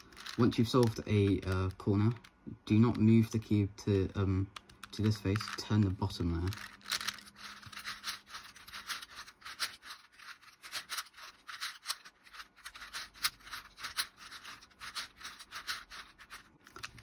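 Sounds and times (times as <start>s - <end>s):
puzzle cube clicking as turned: 0.0s - 3.4s, 4.5s - 17.0s.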